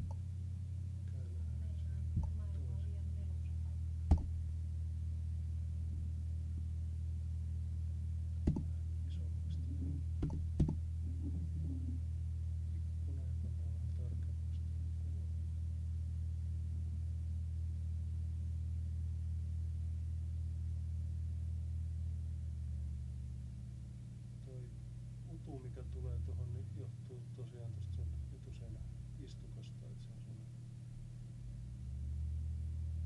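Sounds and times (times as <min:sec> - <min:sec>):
low electrical hum: 0:00.0 - 0:33.0
sharp clicks: 0:04.1 - 0:04.4.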